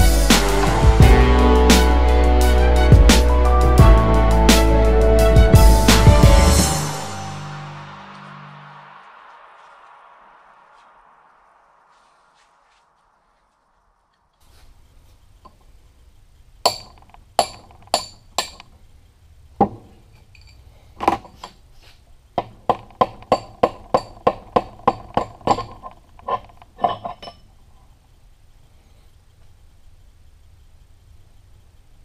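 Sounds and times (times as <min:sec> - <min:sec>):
hammer striking metal punch: 0:16.7 - 0:18.6.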